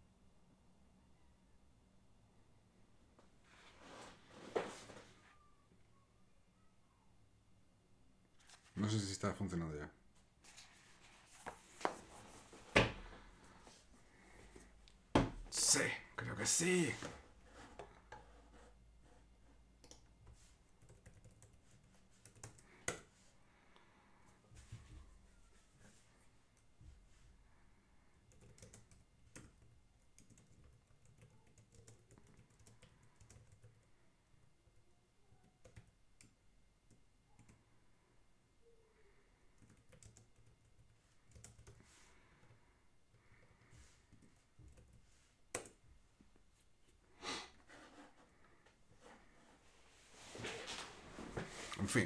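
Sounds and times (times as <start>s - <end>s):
computer keyboard typing: 20.8s - 23.0s, 28.2s - 33.9s, 35.4s - 37.6s, 39.6s - 41.8s.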